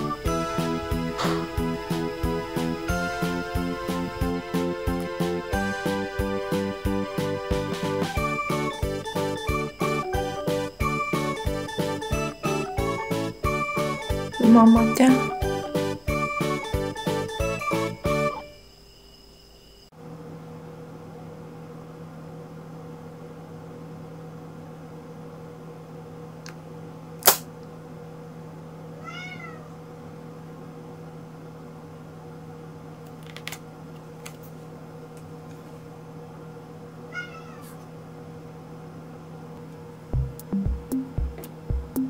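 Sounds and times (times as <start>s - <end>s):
steady low hum: 0.0s - 29.0s, 37.8s - 42.0s
sharp click: 27.2s - 27.5s
cat meowing: 29.0s - 29.7s, 37.1s - 37.8s.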